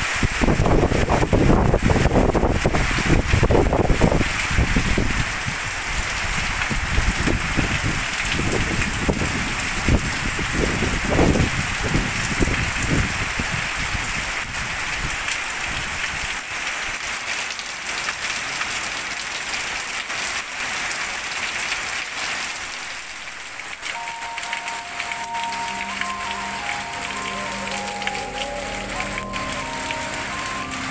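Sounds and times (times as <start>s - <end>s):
heavy rain on foliage: 0.0s - 30.9s
wind gusts buffeting microphone: 0.2s - 15.9s.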